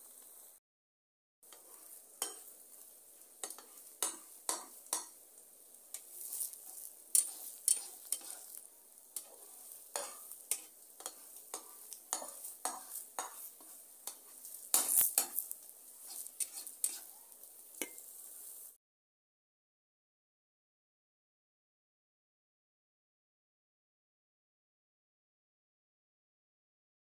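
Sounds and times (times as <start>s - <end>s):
omelette sizzling in a pan: 0.0s - 0.6s, 1.4s - 18.8s
metal spatula scraping a pan: 1.5s - 5.2s, 5.8s - 18.8s.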